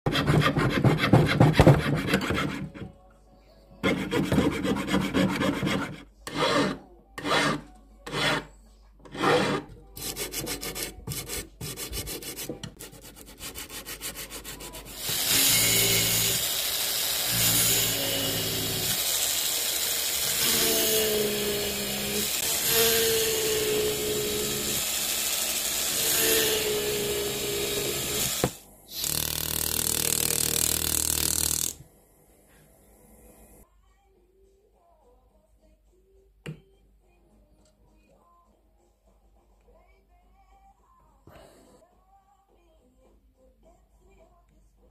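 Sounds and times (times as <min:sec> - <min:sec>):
jeweller's saw strokes: 0:03.8 - 0:08.5, 0:09.1 - 0:31.8
steady tool noise: 0:09.1 - 0:33.6
rotary drill whirring: 0:15.0 - 0:31.8.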